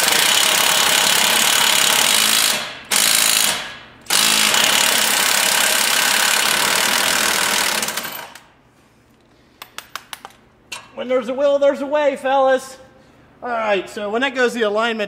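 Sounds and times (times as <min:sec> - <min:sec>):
pneumatic air hammer rattling: 0:00.0 - 0:08.5.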